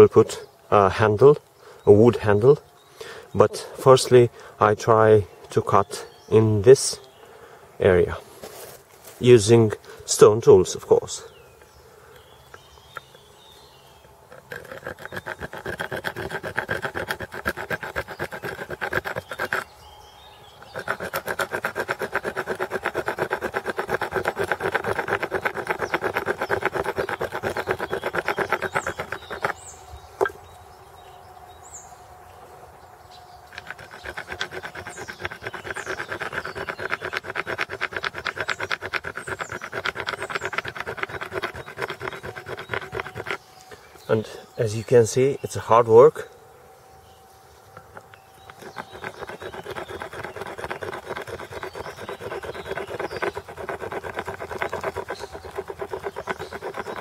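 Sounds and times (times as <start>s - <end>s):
stone sawing antler: 14.3s - 19.7s, 20.6s - 29.7s, 33.5s - 43.5s, 47.9s - 57.0s.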